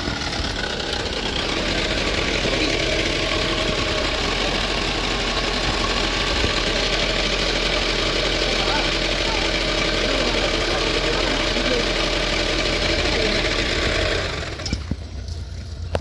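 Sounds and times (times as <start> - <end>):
diesel engine idling: 0.0 - 16.0.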